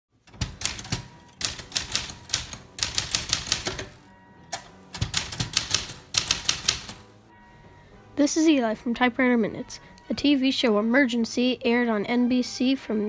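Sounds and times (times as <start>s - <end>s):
typewriter keystroke clacks: 0.3s - 7.0s.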